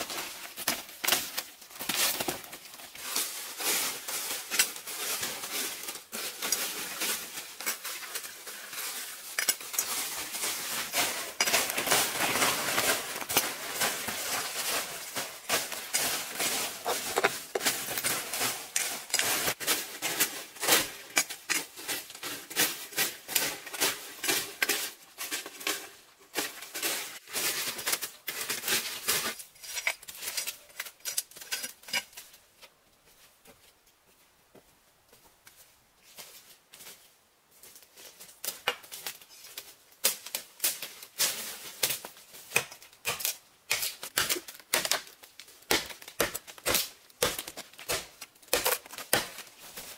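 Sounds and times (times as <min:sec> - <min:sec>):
dry leaves rustling: 0:00.0 - 0:31.5, 0:43.9 - 0:49.9
machete chopping a log: 0:45.7 - 0:49.4.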